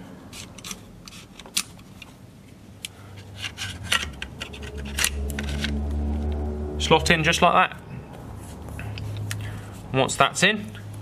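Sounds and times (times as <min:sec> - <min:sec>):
light metal scraping: 0:03.1 - 0:07.4.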